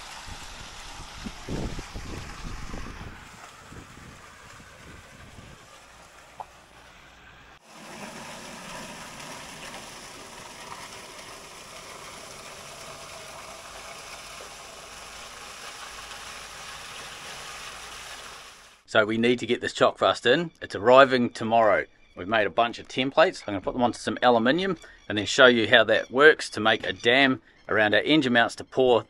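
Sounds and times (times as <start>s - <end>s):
water draining with rushing hiss: 0.0s - 18.8s.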